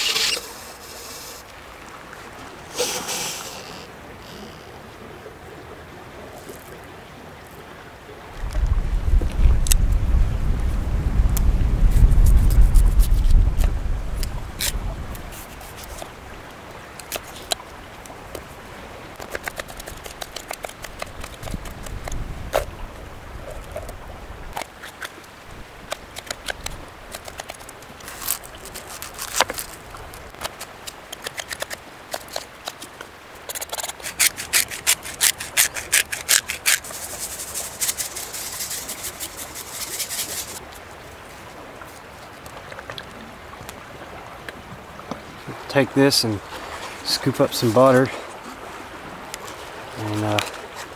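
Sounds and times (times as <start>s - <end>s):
scraping rub: 0.0s - 1.4s, 2.7s - 4.6s, 14.6s - 16.1s, 27.2s - 29.8s, 33.5s - 40.6s
knife cutting on stone slab: 33.6s - 37.0s.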